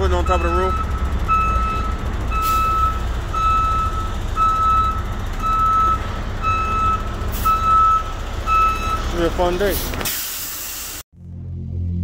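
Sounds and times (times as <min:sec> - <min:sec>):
truck backup alarm beeping: 0:00.0 - 0:09.6
truck engine rumbling: 0:00.0 - 0:12.0.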